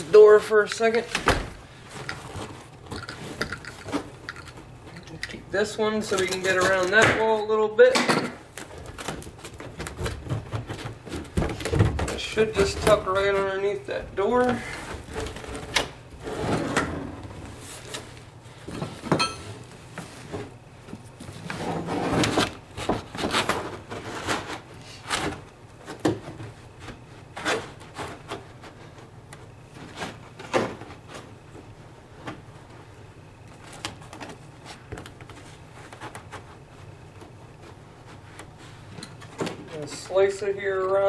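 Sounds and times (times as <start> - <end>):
stiff carpet rustling: 17.1 - 19.0.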